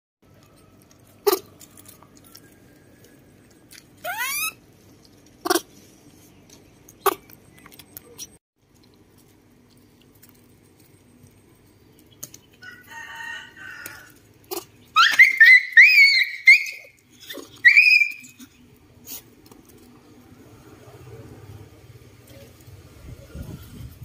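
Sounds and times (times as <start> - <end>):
monkey squealing: 4.0 - 4.6, 14.5 - 18.5
soft monkey call: 4.0 - 4.6.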